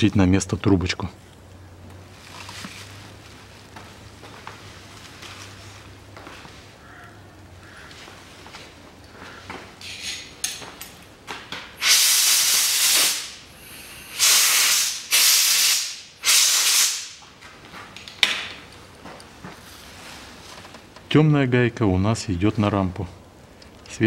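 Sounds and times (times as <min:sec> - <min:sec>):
hissing spray from nozzle: 0:11.8 - 0:17.2.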